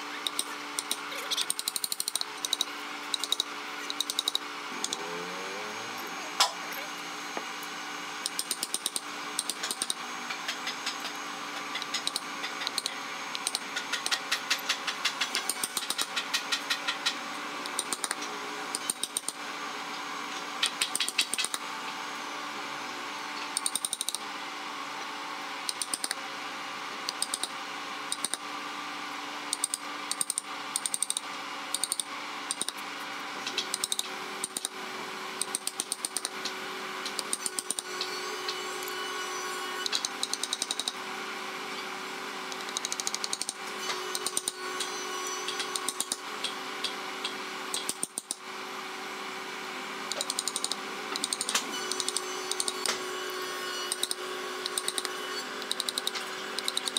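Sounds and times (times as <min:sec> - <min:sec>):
steady hum: 0:02.2 - 0:13.8.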